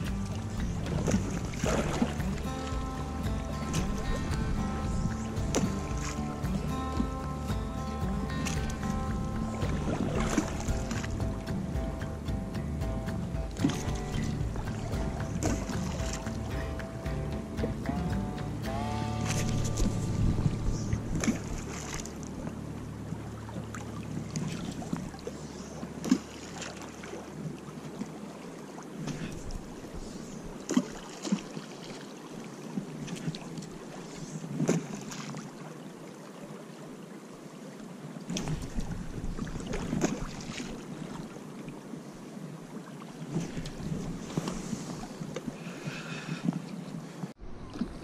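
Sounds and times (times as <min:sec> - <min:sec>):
sharp splashes or knocks: 0:00.0 - 0:22.3, 0:38.3 - 0:40.8
wind buffeting microphone: 0:00.0 - 0:23.3, 0:38.4 - 0:40.5, 0:43.3 - 0:45.4
river current rushing: 0:00.0 - 0:48.0.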